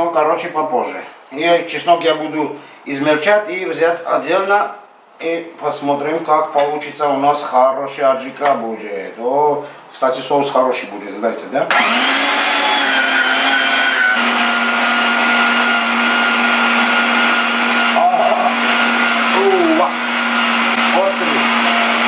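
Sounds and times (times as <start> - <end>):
electric meat grinder running: 11.7 - 22.0.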